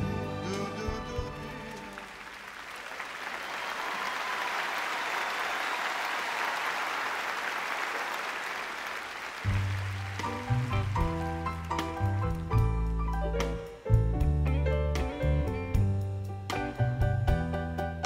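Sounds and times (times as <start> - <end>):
audience applauding: 0.5 - 12.7.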